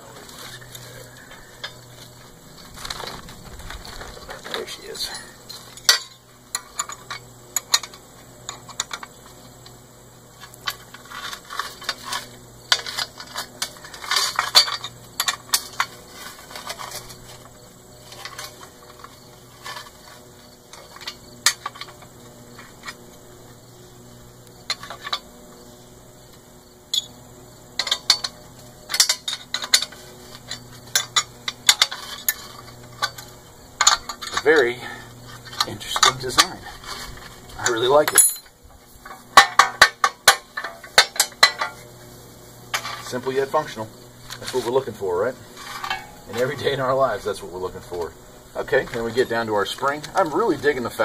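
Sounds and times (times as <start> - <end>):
metal parts clinking: 2.6 - 9.2, 10.4 - 22.0, 27.8 - 41.8, 42.7 - 51.0.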